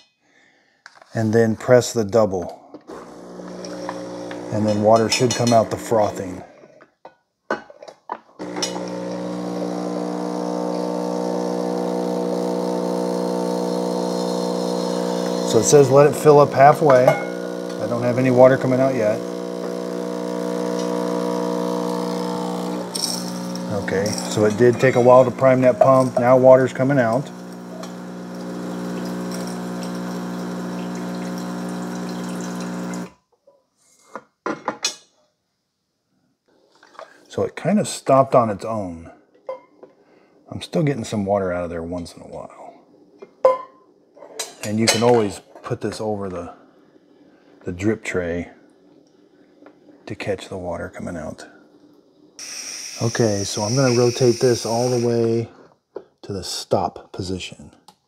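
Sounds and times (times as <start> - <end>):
espresso machine pump humming: 2.9 - 6.4, 8.4 - 33.1, 52.4 - 55.4.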